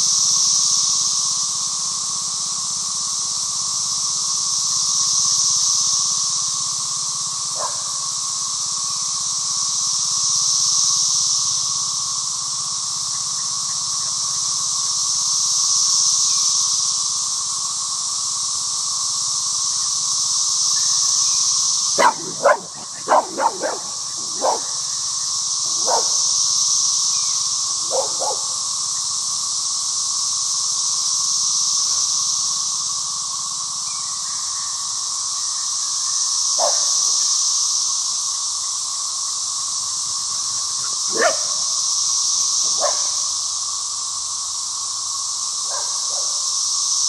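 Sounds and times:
cicadas droning: 0.0 - 47.0
dog barking: 7.6 - 7.9, 22.0 - 24.8, 25.8 - 26.2, 27.9 - 28.5, 36.6 - 36.9, 41.1 - 41.6, 42.8 - 43.2, 45.7 - 46.4.

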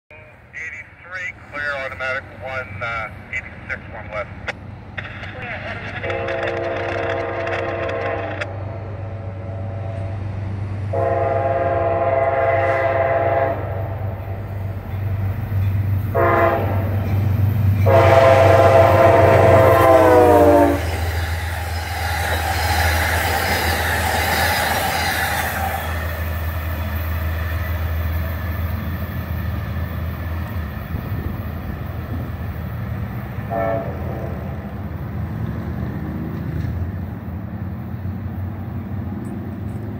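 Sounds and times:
diesel engine droning: 0.1 - 39.9
train wheels rushing: 1.4 - 39.9
locomotive horn blasts: 6.0 - 8.5, 10.9 - 13.8, 16.1 - 17.0, 17.8 - 21.1, 33.4 - 34.3.

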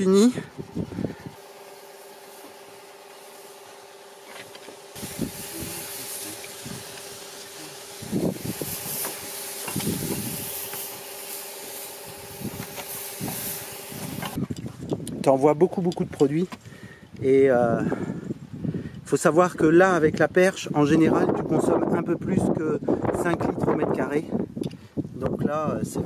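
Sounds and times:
spray hissing from nozzle: 0.0 - 14.4.

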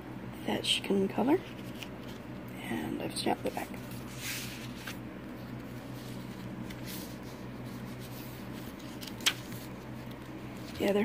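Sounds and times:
steady low hum: 0.0 - 11.0
paper pages rustling: 1.4 - 2.5, 3.3 - 11.0.

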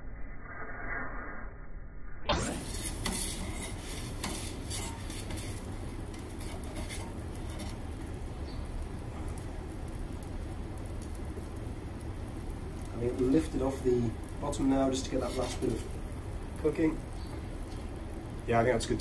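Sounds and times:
metal peel scraping stone: 2.3 - 7.9, 15.0 - 16.0
gas burner rushing: 2.3 - 19.0.

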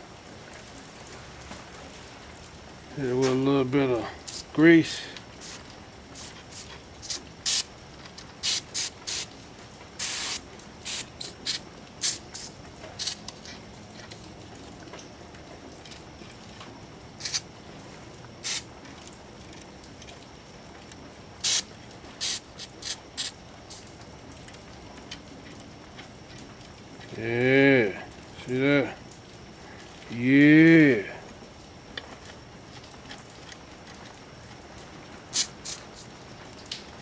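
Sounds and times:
aerosol spray bursts: 5.4 - 5.6, 6.2 - 7.7, 8.4 - 9.3, 10.0 - 13.2, 17.2 - 17.4, 18.4 - 18.7, 21.4 - 23.8, 35.3 - 35.8.

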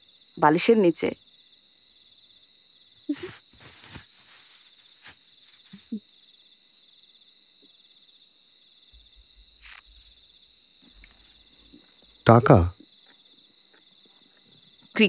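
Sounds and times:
crickets chirring: 0.0 - 15.0
soft rustles of cloth: 3.1 - 6.0, 9.0 - 10.2.

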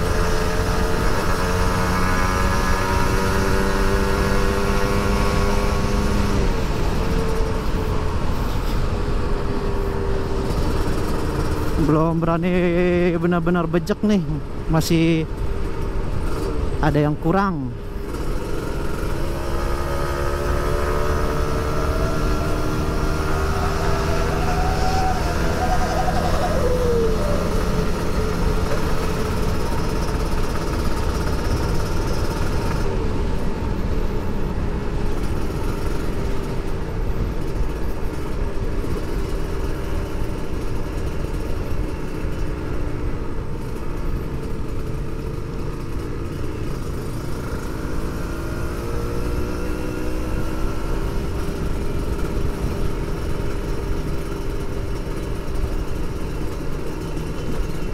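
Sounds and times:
heavy wind noise: 0.0 - 12.5, 13.4 - 42.0
road noise: 0.0 - 57.9
two-stroke motorcycle engine running: 0.0 - 57.9.

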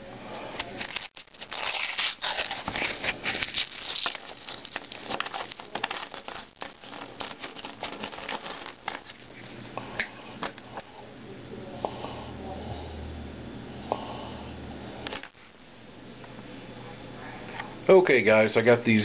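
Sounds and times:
paper wrapper tearing and crinkling: 0.6 - 9.6.

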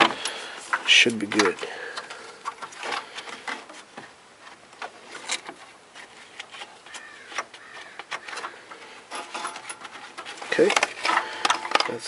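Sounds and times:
hands clicking on plastic: 6.4 - 8.8.

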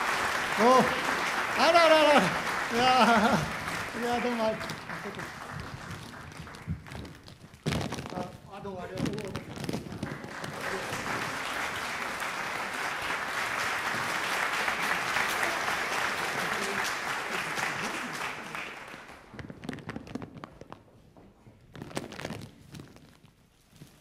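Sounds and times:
audience applauding: 0.0 - 7.4, 9.1 - 19.4.

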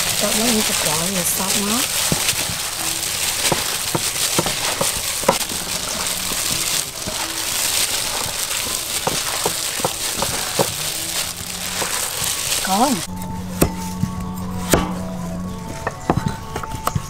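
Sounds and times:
plastic bags crinkling: 0.0 - 13.1
wet meat squelching: 0.0 - 16.0.

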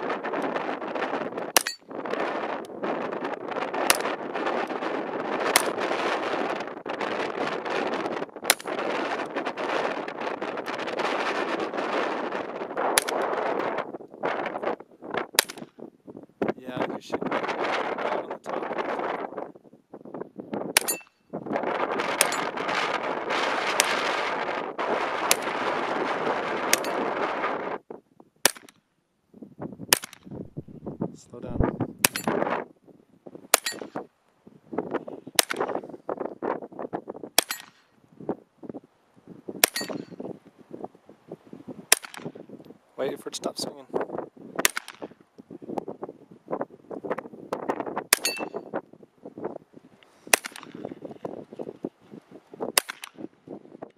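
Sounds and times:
wind buffeting microphone: 0.0 - 53.9
steel target clanging: 1.6 - 1.8, 20.8 - 21.1, 33.6 - 33.9, 37.4 - 37.8, 39.6 - 40.2, 48.2 - 48.6
pistol shots: 44.6 - 45.1, 50.3 - 50.8.

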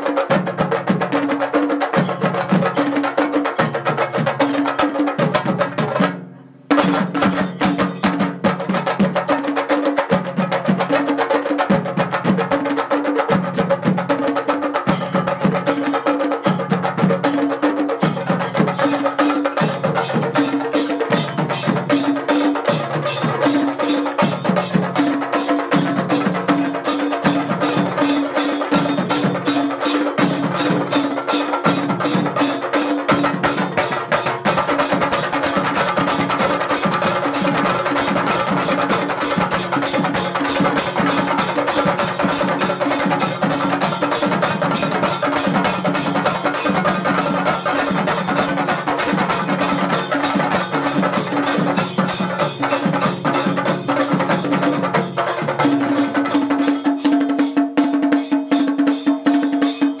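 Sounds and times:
drums beaten with sticks: 0.0 - 60.0
hand cymbals clashing: 6.7 - 8.3, 14.9 - 60.0.

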